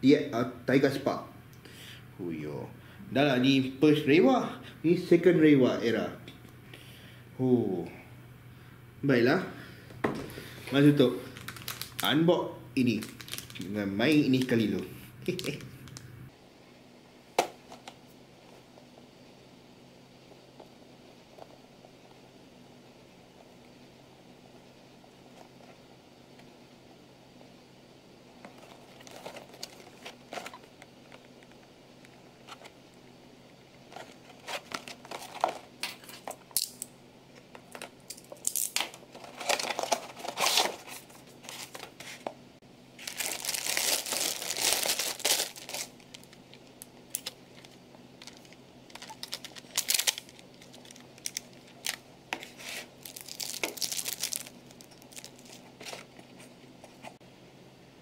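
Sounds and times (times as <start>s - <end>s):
plastic bag crinkling: 11.2s - 12.2s, 12.8s - 14.6s, 28.5s - 31.2s, 38.2s - 42.0s, 43.0s - 56.5s.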